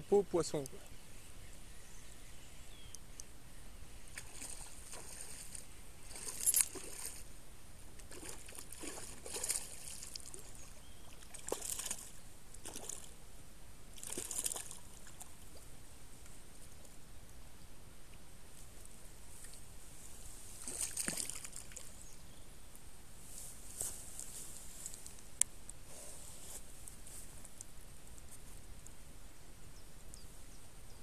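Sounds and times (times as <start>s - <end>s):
lure splashing through water: 4.1s - 7.2s, 8.0s - 13.2s, 14.0s - 15.4s, 20.6s - 22.0s.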